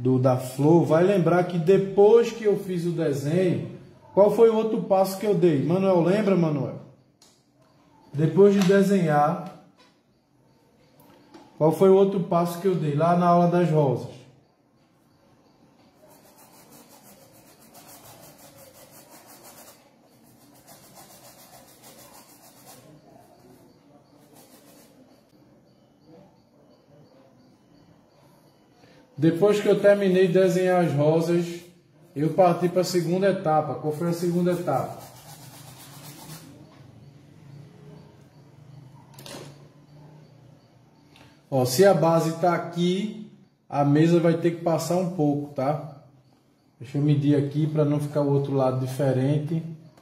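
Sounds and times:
paintbrush scrubbing on canvas: 16.1s - 23.6s, 24.2s - 25.2s, 33.9s - 36.6s.

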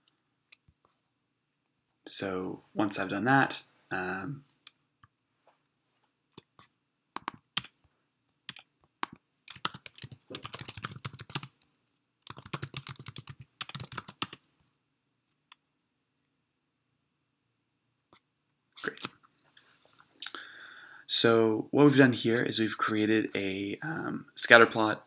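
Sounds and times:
typing on computer keyboard: 8.5s - 11.6s, 12.2s - 14.4s.

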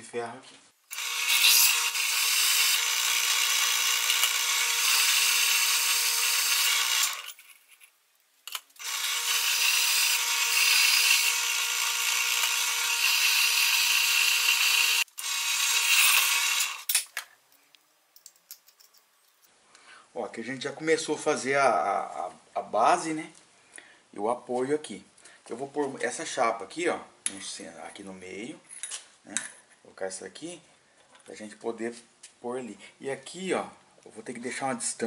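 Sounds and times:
drill press drilling metal: 0.9s - 7.3s, 8.8s - 16.9s.

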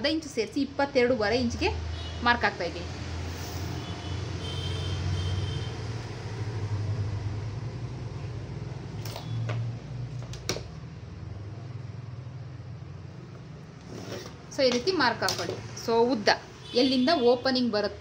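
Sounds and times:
fabric and tape measure handling: 13.8s - 14.8s.

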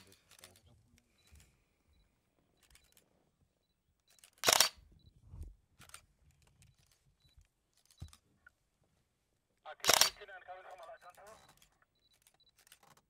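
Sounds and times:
camera shutter clicks: 4.2s - 4.8s, 9.8s - 10.3s.

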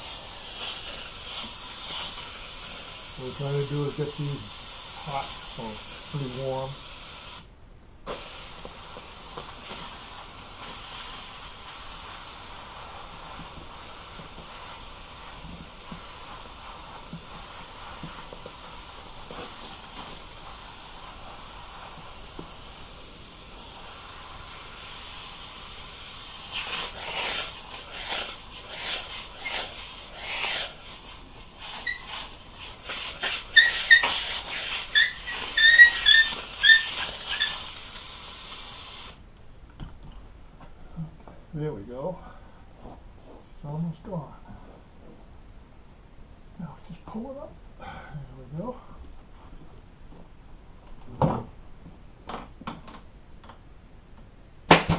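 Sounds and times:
steamer hissing: 0.0s - 7.5s, 8.1s - 39.2s
high squeaks: 31.7s - 32.3s, 33.2s - 37.7s.

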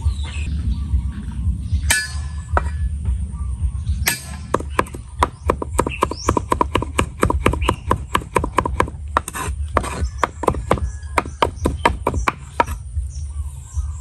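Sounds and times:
cleaver chopping on wooden board: 4.1s - 12.8s.

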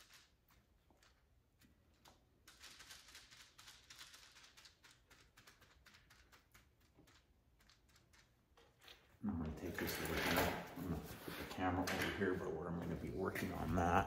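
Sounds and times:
brush tapping and scuffing: 10.6s - 13.9s.

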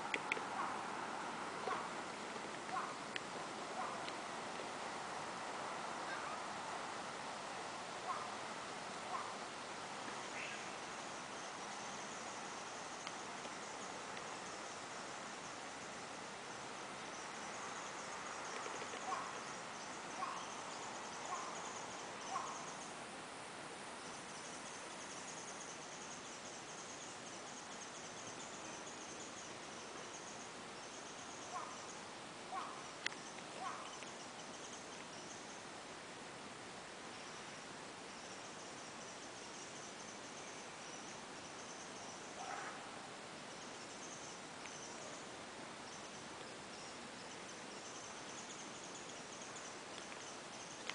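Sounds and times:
insects chirring: 0.0s - 50.9s
faint pitched calls: 2.7s - 3.1s, 6.0s - 6.5s, 18.5s - 22.9s, 31.2s - 34.2s.

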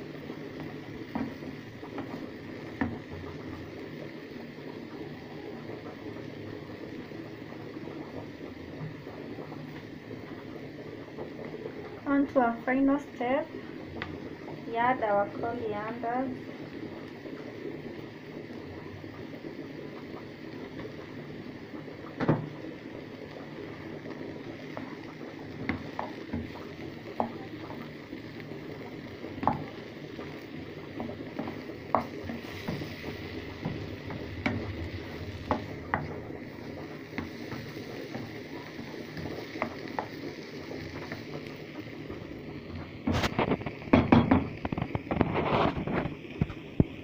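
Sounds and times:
food stirring in a pan: 0.0s - 4.8s, 16.4s - 46.9s
steady hiss: 0.0s - 47.0s
wooden spoon knocking frying pan: 1.0s - 3.3s, 25.6s - 27.8s, 29.3s - 29.8s, 31.0s - 33.0s, 33.6s - 36.2s, 43.9s - 44.7s.

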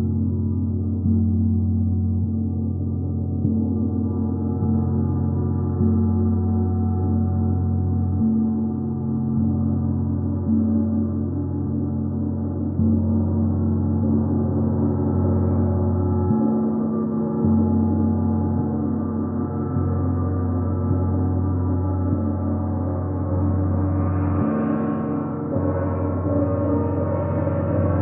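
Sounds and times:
gong sustained wash: 17.4s - 28.0s.

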